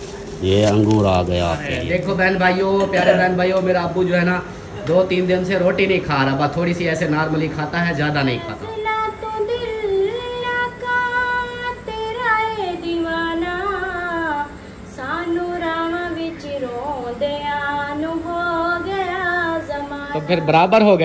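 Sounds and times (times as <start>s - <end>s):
woman singing: 8.4s - 20.3s.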